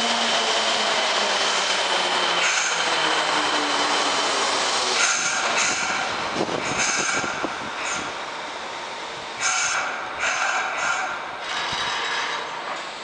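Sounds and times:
train clunks: 0.0 - 8.4, 9.3 - 13.0
train running and braking: 0.0 - 13.0.

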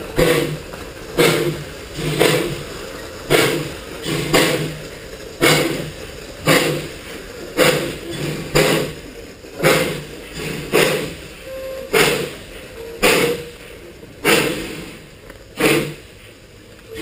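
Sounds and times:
steam locomotive exhaust chuffs: 0.0 - 17.0.

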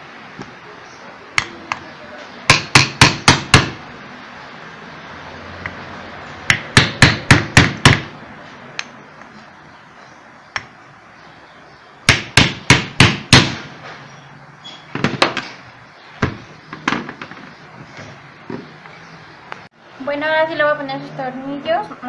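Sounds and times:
hammer tapping on wooden block: 2.5 - 3.8.

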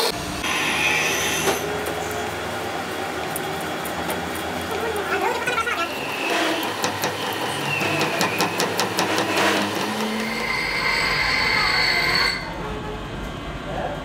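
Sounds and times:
lathe cutting whine: 0.4 - 1.7, 5.9 - 12.4.

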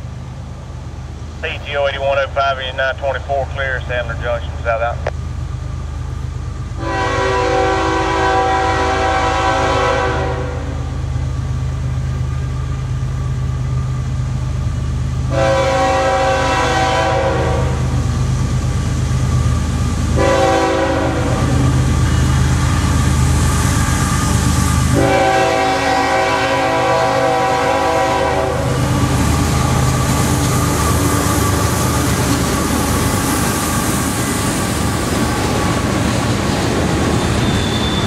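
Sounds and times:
train rumbling: 0.0 - 38.0
locomotive air horn blasts: 6.8 - 10.8, 15.3 - 17.8, 20.2 - 21.7, 24.9 - 28.8.

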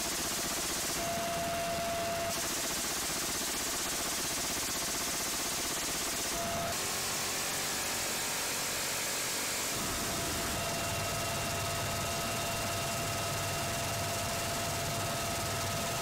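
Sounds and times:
helicopter wind and rotor rush: 0.0 - 16.0
turbine engine whine: 0.0 - 16.0.

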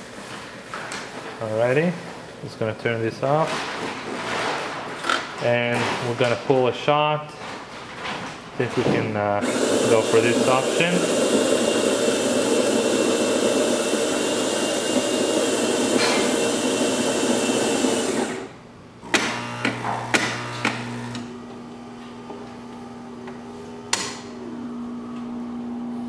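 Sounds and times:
coffee grinder running: 9.4 - 21.4
pump humming: 9.4 - 26.0.

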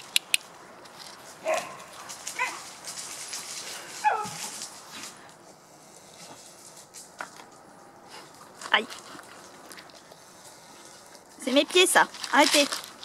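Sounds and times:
sharp clicks: 0.0 - 0.5.

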